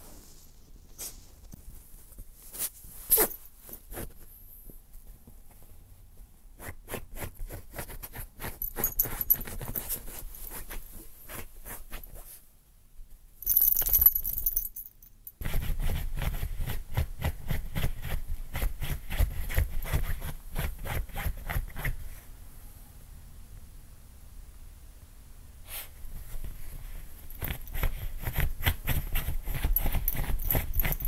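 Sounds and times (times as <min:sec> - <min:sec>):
puppy scratching itself: 0:15.4 - 0:22.0, 0:25.7 - 0:31.0.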